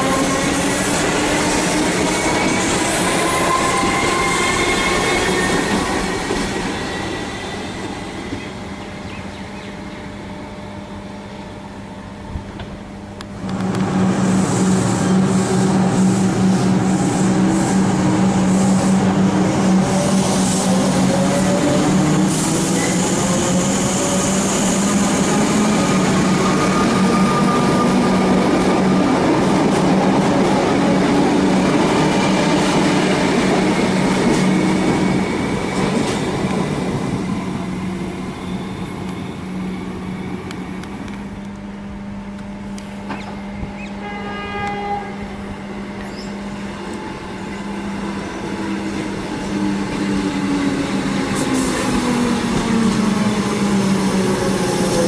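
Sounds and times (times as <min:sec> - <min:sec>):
train wheels and carriages passing: 0:00.0 - 0:12.7, 0:13.4 - 0:55.0
electric train motor whine: 0:00.0 - 0:55.0
train horn: 0:43.9 - 0:45.9.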